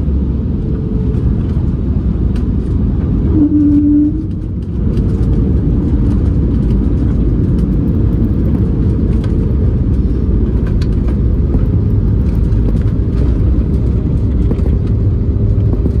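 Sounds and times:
airliner engines and wheels rumbling: 0.0s - 16.0s.

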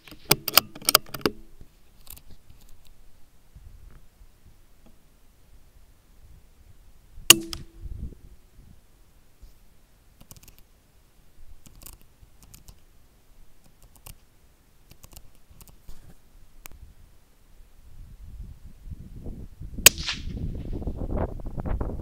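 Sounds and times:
faint clicks and rustles: 0.0s - 3.1s, 11.6s - 12.9s, 13.5s - 16.8s
dull thud of bullet hit: 7.3s - 7.7s, 19.9s - 20.4s
rifle shot: 7.3s - 7.8s, 19.8s - 20.4s.

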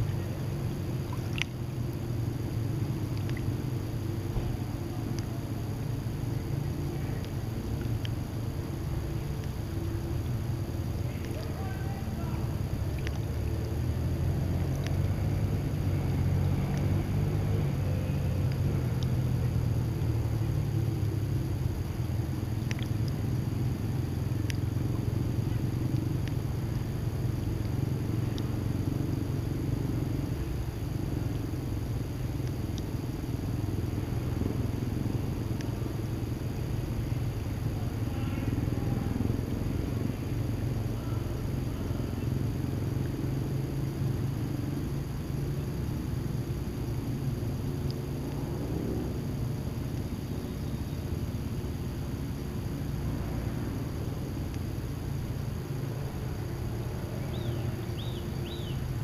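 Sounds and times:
water lapping the shore: 0.0s - 5.5s
faint ticks: 0.0s - 17.4s, 18.2s - 39.6s, 42.1s - 59.0s
steady low rumble: 0.0s - 59.0s.

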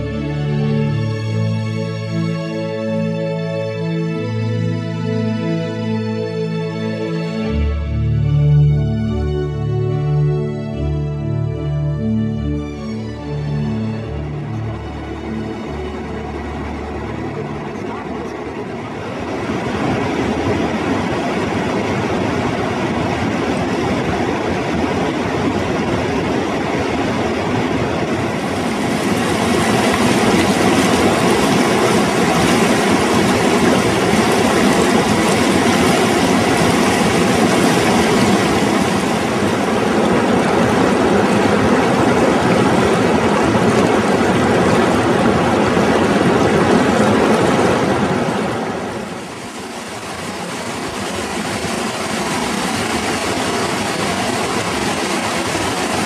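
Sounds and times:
river rushing over rapids: 14.0s - 56.0s.

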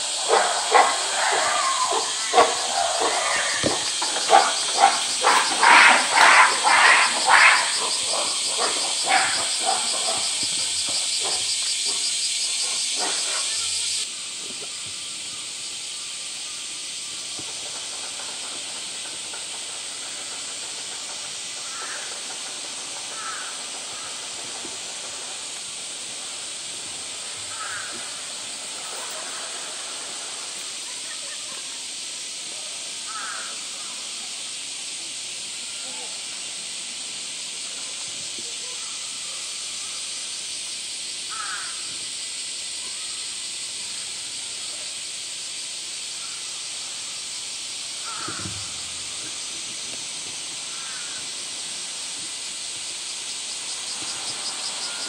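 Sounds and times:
steady high hiss: 0.0s - 55.0s
gorilla screaming: 0.1s - 10.4s
faint crow caws: 21.6s - 22.2s, 23.1s - 24.2s, 27.5s - 28.2s, 33.1s - 33.9s, 41.3s - 41.9s, 48.0s - 48.7s, 50.7s - 51.3s.

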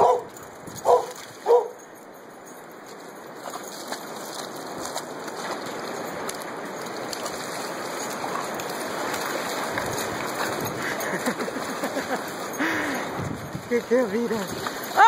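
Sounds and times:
seawater rushing over rocks: 3.3s - 15.0s.

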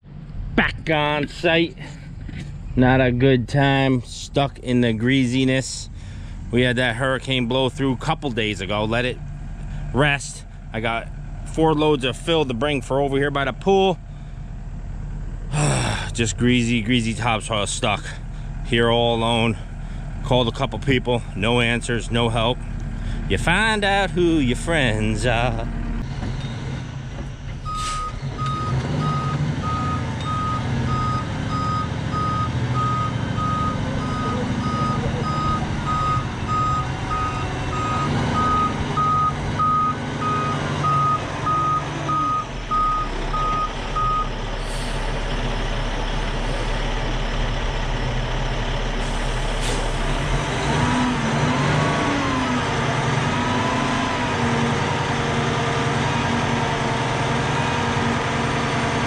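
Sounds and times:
diesel engine running: 0.0s - 59.0s
back-up alarm beeping: 27.6s - 44.3s.

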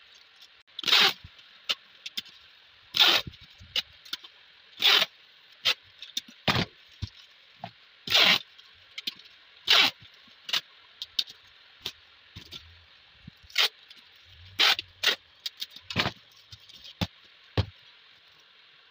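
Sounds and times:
packing tape ripping off dispenser: 0.8s - 1.3s, 3.0s - 3.3s, 4.8s - 5.8s, 8.1s - 8.4s, 9.7s - 10.6s, 13.5s - 13.7s, 14.6s - 15.2s.

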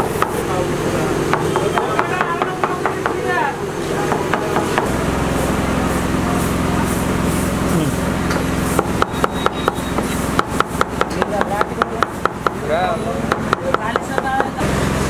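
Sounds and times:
knife chopping on wooden board: 8.3s - 12.6s, 13.3s - 14.5s.

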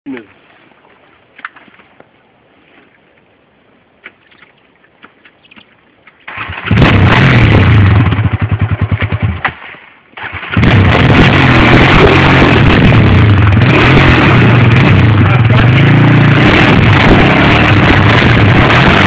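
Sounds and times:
quad bike engine running: 6.4s - 9.6s, 10.2s - 19.0s.

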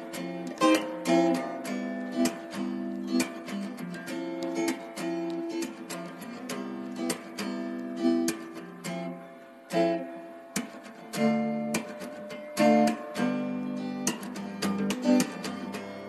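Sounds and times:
acoustic guitar chords: 0.0s - 16.0s.

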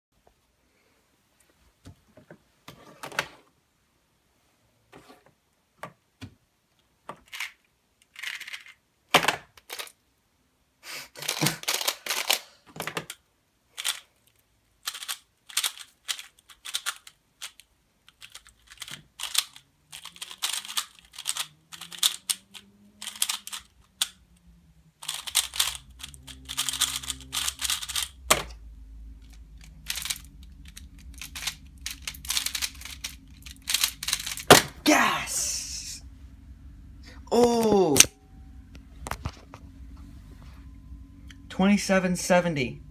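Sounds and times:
faint low hum: 9.5s - 42.9s
puzzle cubes clicking: 11.2s - 13.2s, 14.8s - 24.2s, 25.0s - 28.5s, 29.2s - 34.8s.

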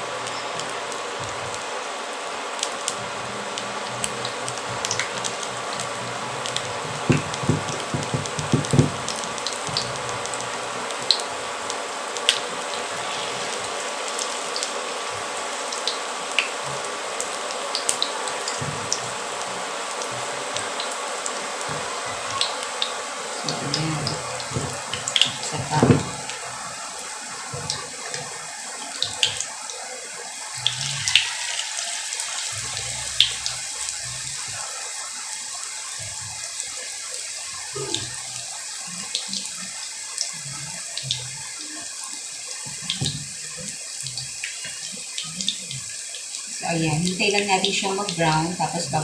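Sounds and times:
batter sizzling in oil: 0.0s - 49.0s
low knocks: 6.9s - 9.9s.

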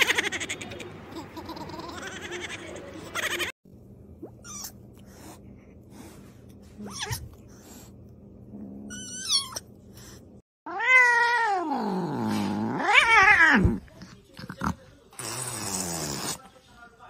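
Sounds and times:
cat yowling angrily: 10.7s - 13.6s.

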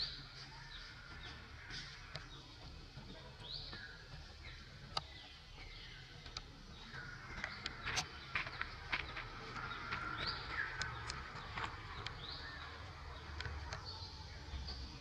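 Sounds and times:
birds chirping: 0.0s - 15.0s
sharp clicks: 7.4s - 12.2s.

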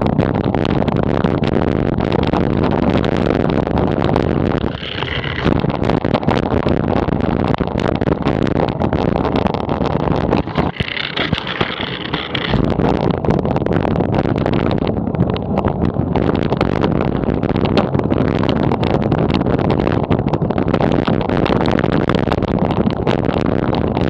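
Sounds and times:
high whine: 0.0s - 17.9s
wind over microphone: 0.0s - 24.0s.

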